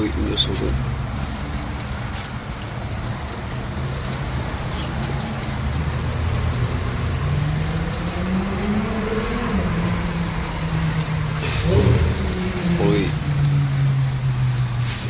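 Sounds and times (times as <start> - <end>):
road traffic noise: 0.0 - 15.0
vehicle engine rising in pitch: 7.6 - 15.0.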